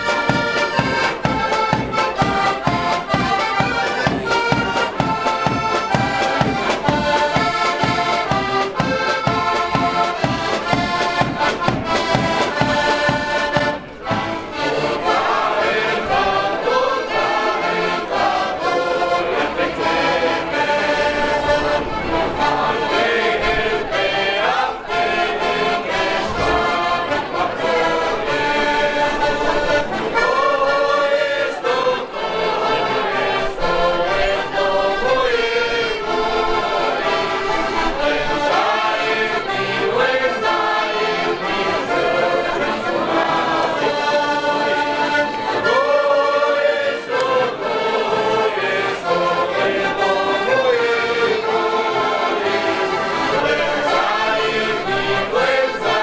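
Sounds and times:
drum beat: 0.0 - 14.4
accordions playing folk tune: 0.0 - 56.0
men singing: 14.6 - 56.0.

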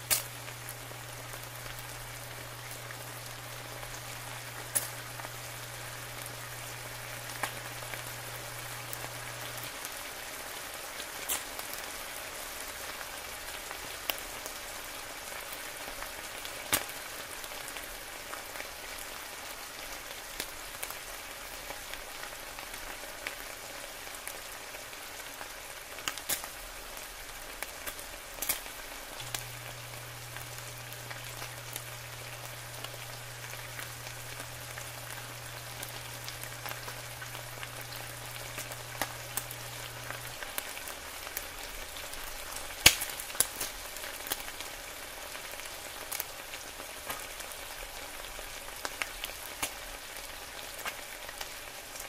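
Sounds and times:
bacon sizzling in a pan: 0.0 - 52.0
grease popping: 27.6 - 44.6.

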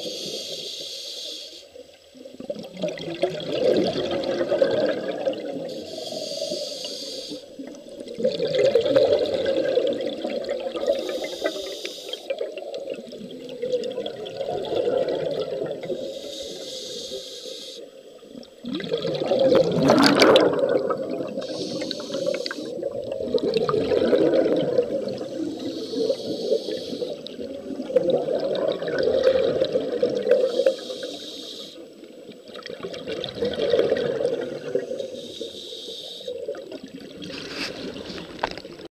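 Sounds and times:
regulator hiss on inhale: 0.0 - 2.0, 5.6 - 7.8, 10.7 - 12.6, 15.8 - 18.5, 21.2 - 22.9, 24.8 - 27.6, 30.1 - 32.2, 34.4 - 36.6
exhaled bubbles gurgling: 1.8 - 38.9.

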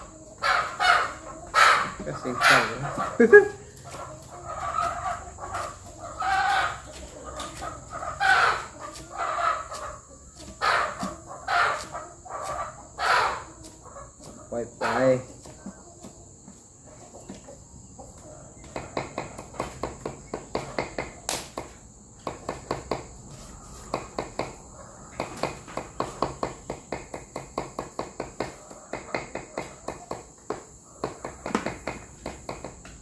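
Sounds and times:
high insect trilling: 0.0 - 17.1.

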